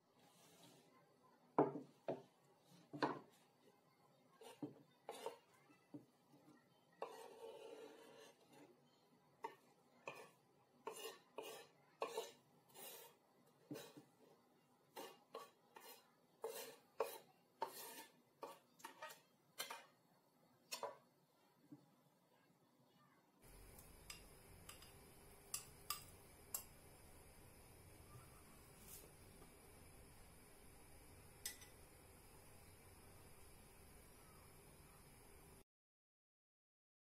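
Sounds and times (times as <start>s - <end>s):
knife scraping on cutting board: 4.4s - 5.4s, 7.0s - 8.7s, 9.4s - 14.1s, 14.9s - 19.9s.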